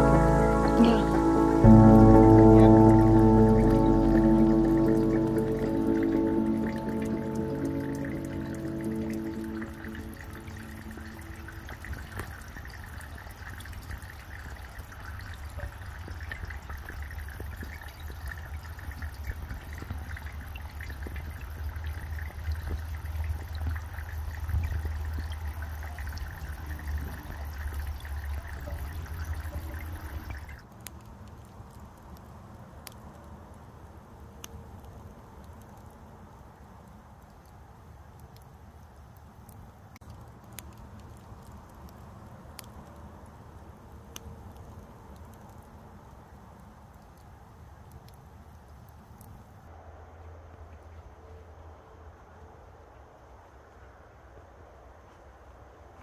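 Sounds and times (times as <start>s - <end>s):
fountain splashing into pond: 0.0s - 32.8s.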